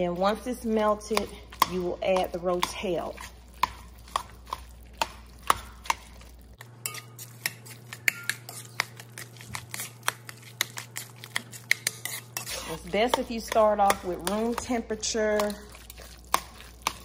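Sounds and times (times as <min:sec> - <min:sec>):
metal spoon scraping a pot: 0:06.6 - 0:17.0.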